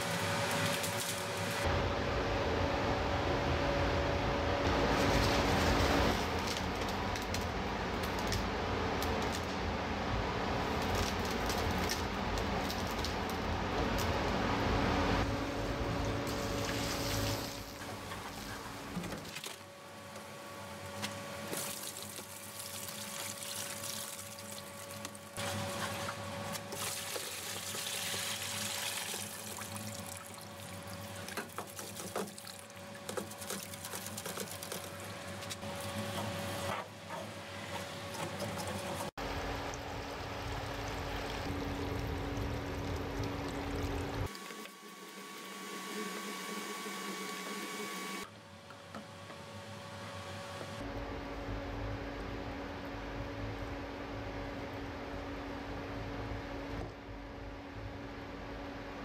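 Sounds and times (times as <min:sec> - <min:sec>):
liquid pouring and splashing: 0:21.5 - 0:35.6, 0:38.2 - 0:44.8.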